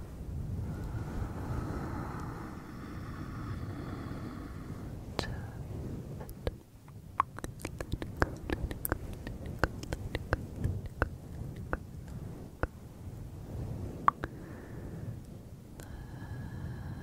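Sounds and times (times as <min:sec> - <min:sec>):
rubbing microphone windscreen: 0:07.3 - 0:12.6.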